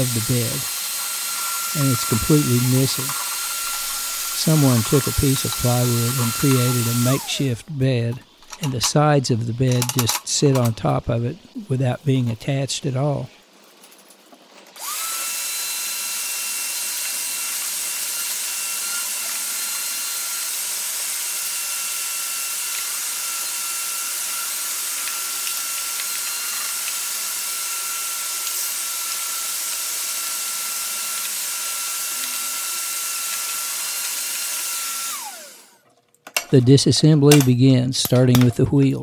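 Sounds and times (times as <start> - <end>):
shop vacuum whining: 0.0 - 12.4, 14.7 - 38.9.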